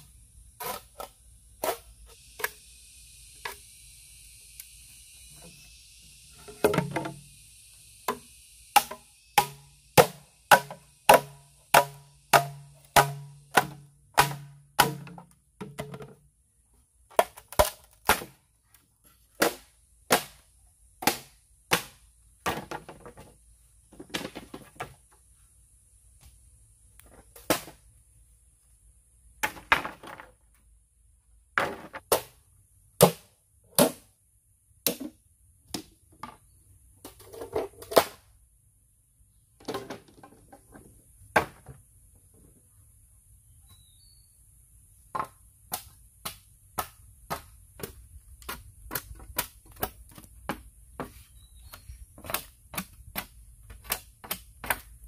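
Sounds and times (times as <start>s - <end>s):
machete chopping bamboo: 8.1s - 16.1s, 17.1s - 18.4s, 19.3s - 22.9s, 33.0s - 34.1s, 34.9s - 35.9s, 45.2s - 50.6s, 52.2s - 55.0s
knocks on bamboo: 8.8s - 16.2s.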